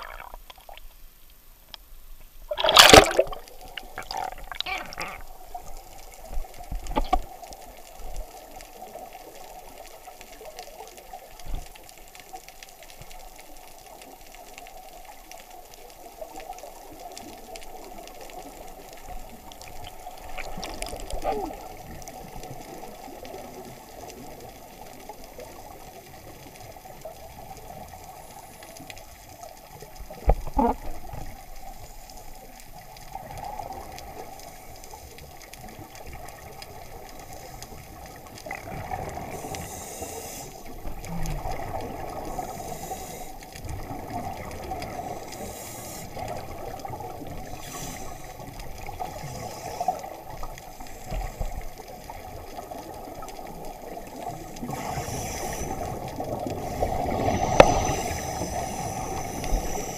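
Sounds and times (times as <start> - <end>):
scuba bubbles hissing: 0.0 - 0.9, 2.5 - 6.2, 36.7 - 59.9
muffled underwater noise: 2.5 - 11.5, 15.9 - 59.9.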